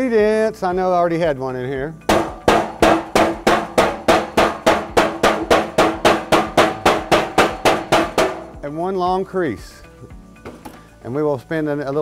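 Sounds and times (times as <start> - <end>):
hammer striking sheet metal: 2.1 - 8.7.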